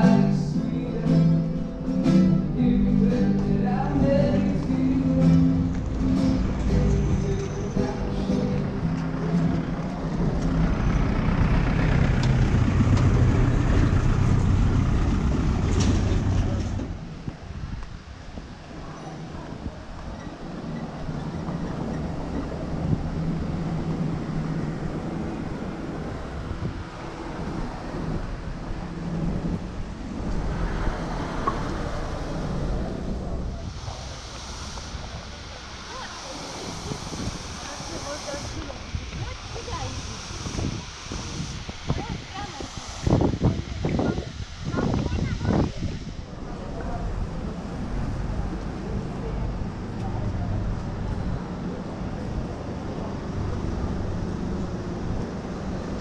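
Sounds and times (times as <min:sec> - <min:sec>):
music: 0:00.0 - 0:09.8
city traffic: 0:00.0 - 0:56.0
motor vehicle rumbling: 0:00.0 - 0:56.0
wind on microphone: 0:04.1 - 0:48.8.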